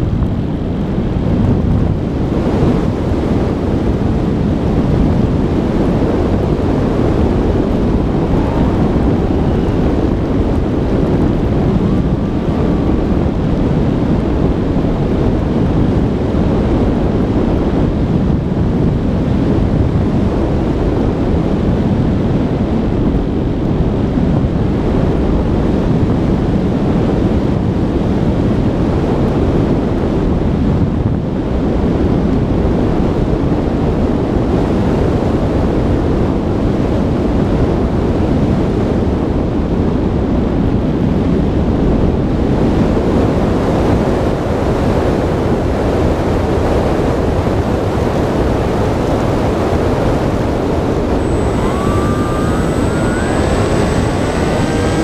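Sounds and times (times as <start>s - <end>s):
pitched engine whine: 0.0s - 26.7s, 47.0s - 55.0s
model airplane engine: 0.0s - 55.0s
wind rush: 0.0s - 55.0s.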